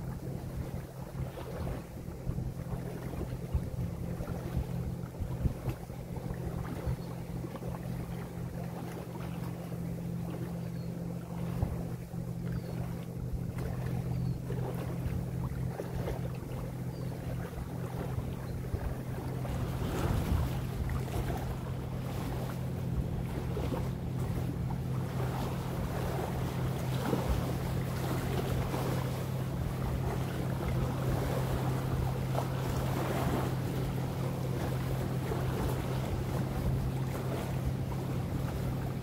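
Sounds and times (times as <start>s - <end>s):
low engine hum: 0.0s - 39.0s
waves lapping at shore: 0.0s - 39.0s
wind on microphone: 0.4s - 8.2s, 11.4s - 39.0s.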